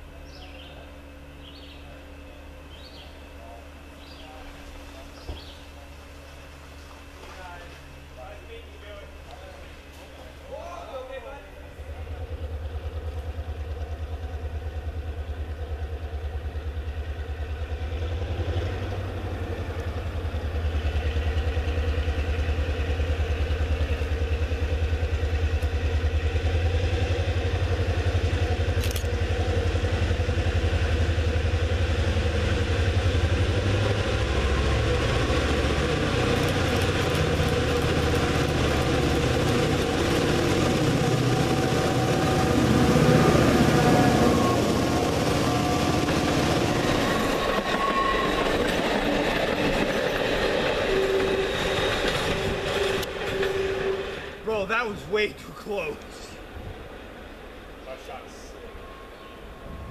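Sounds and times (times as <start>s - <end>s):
diesel locomotive engine rumble: 0.0s - 59.9s
train wheels clicking: 15.5s - 54.9s.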